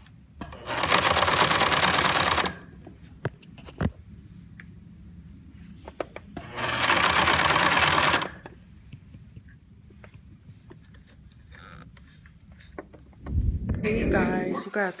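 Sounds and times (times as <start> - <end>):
sewing machine humming and clicking: 0.5 - 2.6, 6.4 - 8.4
loud rushing noise: 13.2 - 14.6.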